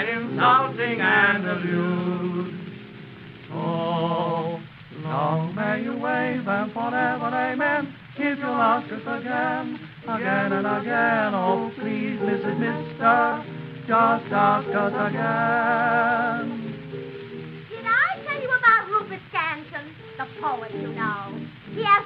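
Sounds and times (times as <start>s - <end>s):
man singing with vibrato: 0.0s - 2.8s, 3.5s - 16.9s.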